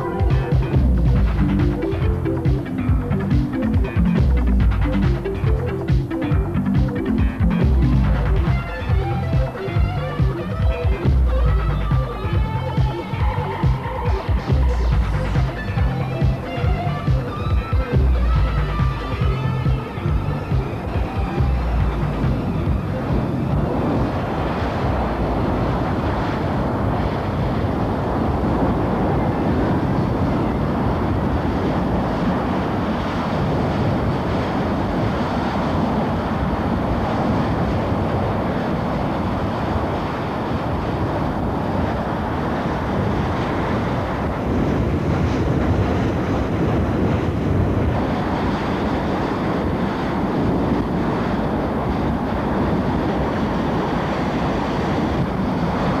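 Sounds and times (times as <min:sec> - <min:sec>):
rushing roar of well jet: 0:00.0 - 0:56.0.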